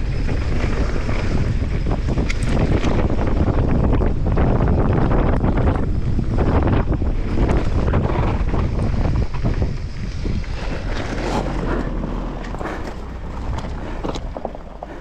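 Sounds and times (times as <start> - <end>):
bike clicks and rattles: 0.0 - 15.0
bike tyres rolling on gravel: 0.0 - 15.0
wind buffeting microphone: 0.0 - 15.0.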